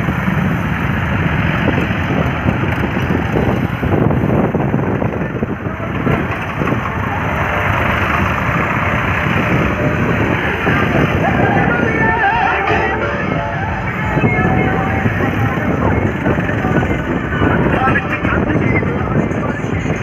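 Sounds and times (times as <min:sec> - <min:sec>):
diesel tractors running: 0:00.0 - 0:20.0
motorcycles running: 0:00.0 - 0:20.0.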